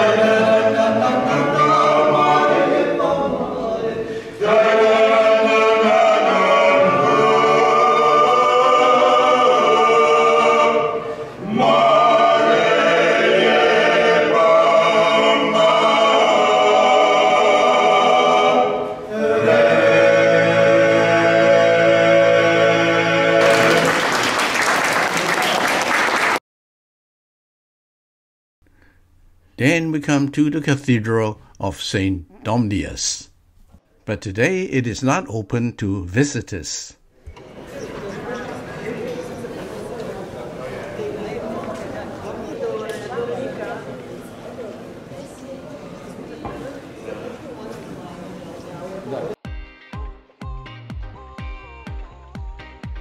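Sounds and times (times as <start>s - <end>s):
male group singing in harmony: 0.0s - 23.9s
applause: 23.4s - 26.4s.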